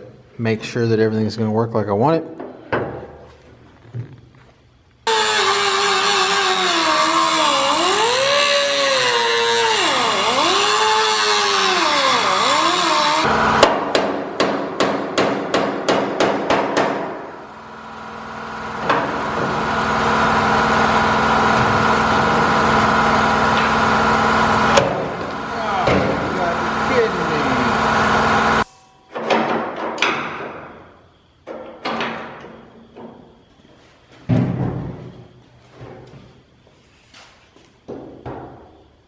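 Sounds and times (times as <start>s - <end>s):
steady mechanical hum: 0.0s - 29.2s, 30.4s - 39.0s
cut-off wheel grinding steel: 5.1s - 13.6s
hammer striking metal hinge: 13.6s - 17.2s.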